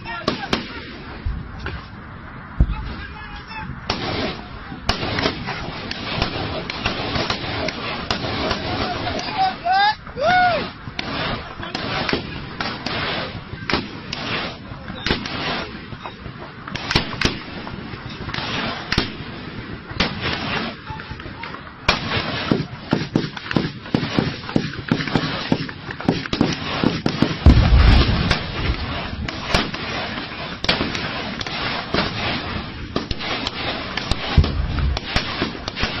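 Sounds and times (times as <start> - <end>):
rapid gunfire: 3.9 - 9.2, 11.0 - 15.8, 21.9 - 36.0
deep booms: 27.4 - 30.0, 34.1 - 36.0.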